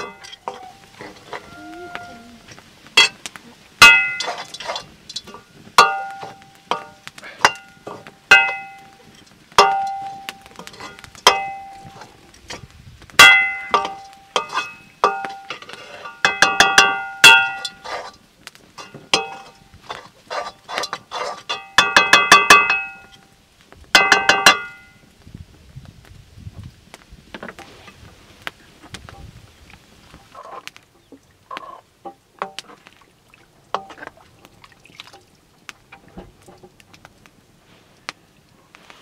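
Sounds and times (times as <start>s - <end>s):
ladle scraping a metal wok: 0.0s - 2.0s, 3.9s - 5.5s, 10.6s - 11.2s, 13.7s - 16.4s, 17.3s - 18.2s, 18.8s - 21.8s.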